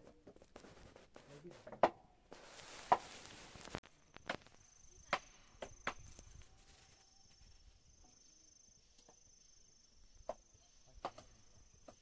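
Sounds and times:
faint high insect trill: 3.8s - 12.0s.

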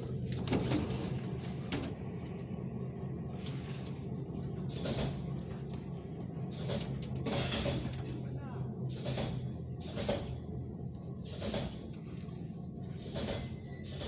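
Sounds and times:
electric train hum: 0.0s - 14.0s
air brake hisses: 4.7s - 5.2s, 6.5s - 7.8s, 8.9s - 10.3s, 11.2s - 11.8s, 12.9s - 14.0s.

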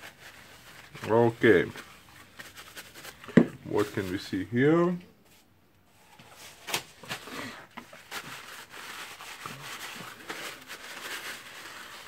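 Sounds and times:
paper towel rubbing on metal: 0.0s - 4.1s, 8.0s - 12.0s.

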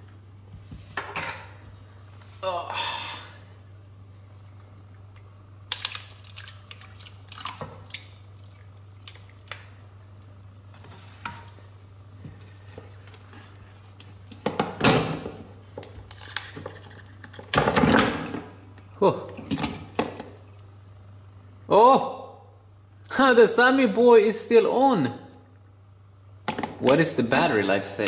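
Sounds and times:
water sloshing: 5.7s - 9.6s
water splashing in metal bowl: 5.7s - 9.6s.

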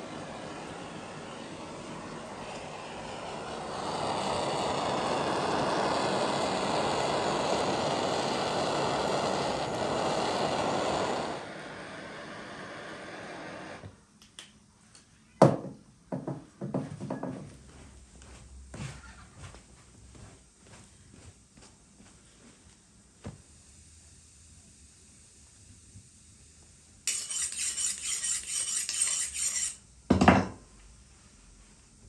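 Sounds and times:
blowtorch flame hissing: 0.0s - 14.1s, 23.1s - 29.8s.

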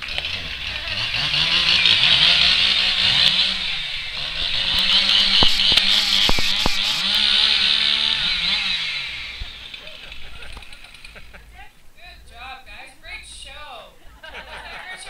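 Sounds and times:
chainsaw engine revving: 0.0s - 11.5s
sharp clicks: 4.4s - 7.3s, 10.4s - 11.3s.

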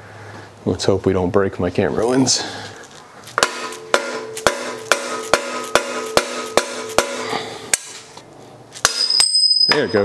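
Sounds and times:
metal ringing: 3.4s - 7.9s, 8.8s - 10.0s
hammer striking metal tool: 3.4s - 8.0s, 8.8s - 10.0s.

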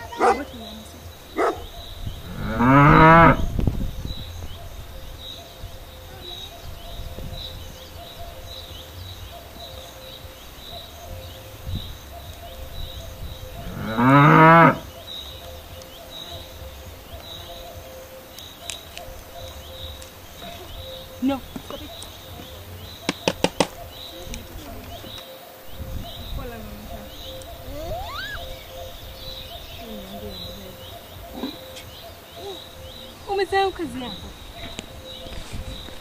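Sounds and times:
cow mooing: 2.2s - 3.5s, 13.6s - 14.8s.

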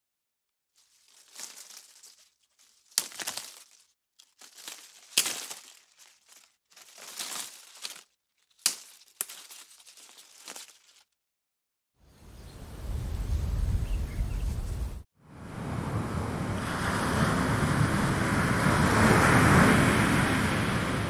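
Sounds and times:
crinkling crackling noise: 0.8s - 11.2s
sharp crack: 2.9s - 3.8s, 7.0s - 9.6s.

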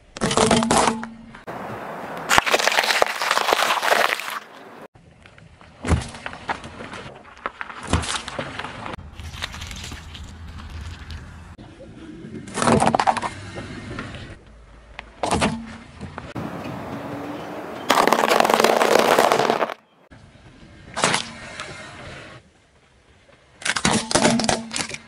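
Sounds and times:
car tyre crushing objects: 0.1s - 11.4s, 14.8s - 20.0s
sharp crack: 1.4s - 4.9s, 17.9s - 19.9s
crunching of dry food: 2.3s - 4.9s, 17.9s - 19.8s.

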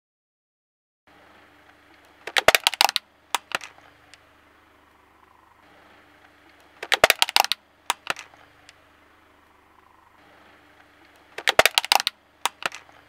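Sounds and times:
faint steady hum: 1.1s - 13.0s
single cracks: 1.7s - 4.2s, 6.2s - 8.8s, 10.8s - 13.0s.

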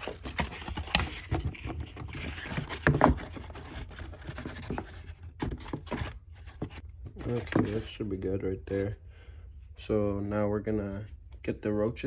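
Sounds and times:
cardboard rustling and scraping: 0.0s - 9.0s.

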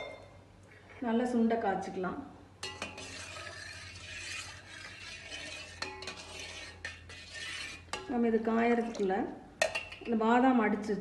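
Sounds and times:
ladle scraping saucepan: 2.6s - 9.1s.

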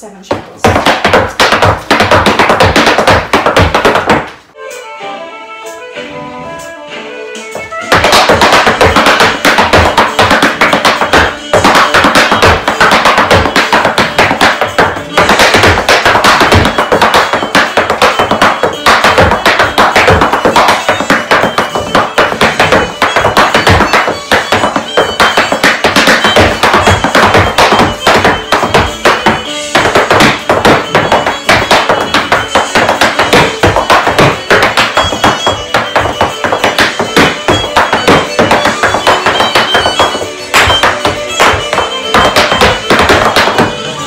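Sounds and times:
hard shoes striking floor mat: 0.3s - 4.4s, 7.4s - 44.0s
fiddle and saxophone dance music: 0.4s - 44.0s.

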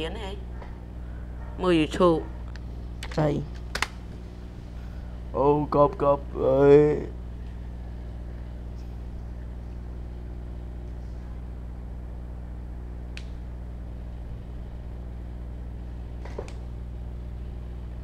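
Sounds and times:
electrical hum with buzz: 0.0s - 18.0s.

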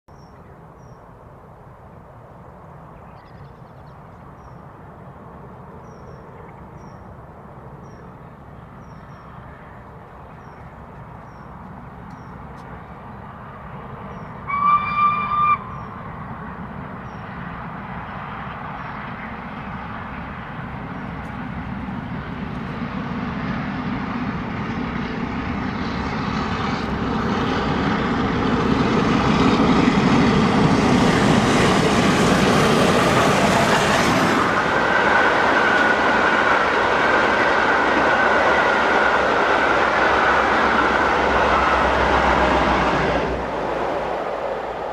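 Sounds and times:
steam locomotive passing: 0.6s - 44.9s
steam whistle: 14.5s - 15.7s.

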